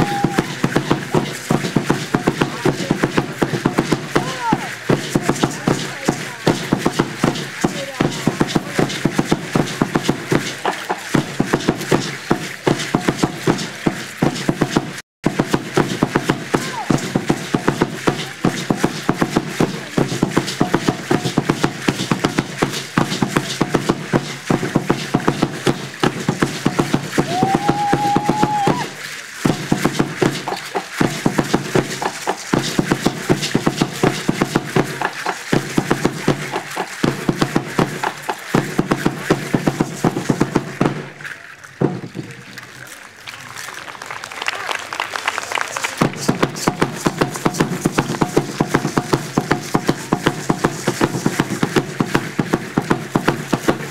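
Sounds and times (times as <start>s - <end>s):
fast steady drumming: 0.0s - 42.4s, 45.7s - 53.9s.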